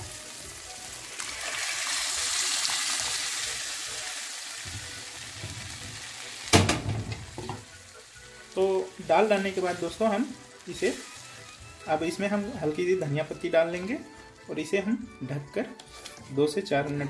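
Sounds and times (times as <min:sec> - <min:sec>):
food sizzling in a hot pan: 0:00.0 - 0:16.9
loud knock: 0:06.5 - 0:07.2.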